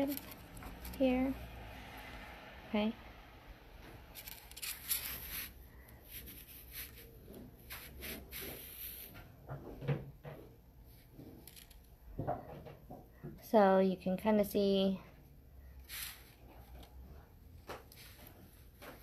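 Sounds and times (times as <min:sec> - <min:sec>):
wire threading handling noises: 0:00.0 - 0:02.0, 0:03.8 - 0:13.3, 0:15.5 - 0:19.0.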